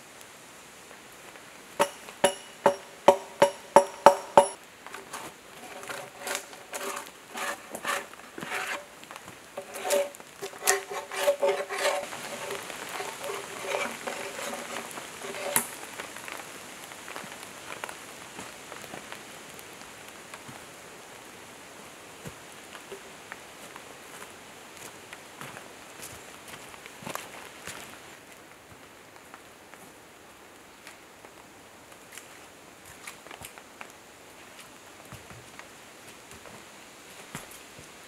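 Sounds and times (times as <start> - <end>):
bark scraping: 5.0 - 8.9, 9.6 - 15.7.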